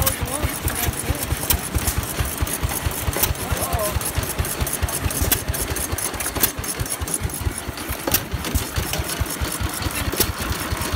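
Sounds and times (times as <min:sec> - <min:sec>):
old stationary engines thumping: 0:00.0 - 0:10.9
sharp engine clicks: 0:00.0 - 0:10.9.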